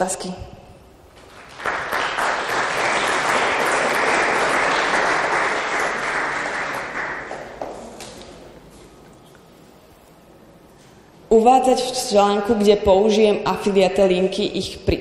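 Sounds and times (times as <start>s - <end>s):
audience applauding: 1.2s - 7.9s.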